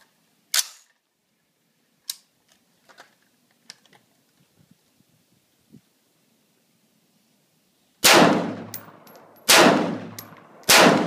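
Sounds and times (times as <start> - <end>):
rifle action clacking: 8.6 - 11.0.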